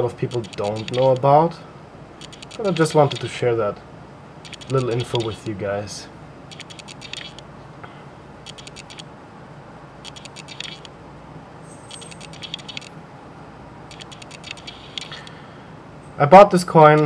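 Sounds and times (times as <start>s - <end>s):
faint low hum: 0.0s - 17.0s
coin scratchy clicking: 0.3s - 1.2s, 2.2s - 3.3s, 4.4s - 5.5s, 6.5s - 7.4s, 8.5s - 9.0s, 10.0s - 10.9s, 11.9s - 12.9s, 13.9s - 15.3s.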